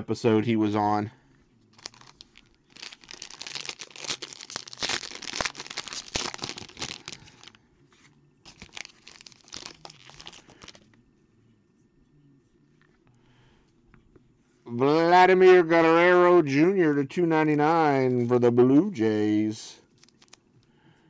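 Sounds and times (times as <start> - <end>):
plastic and foil wrapper crinkling: 1.7 - 7.6, 8.5 - 11.0, 19.9 - 20.4.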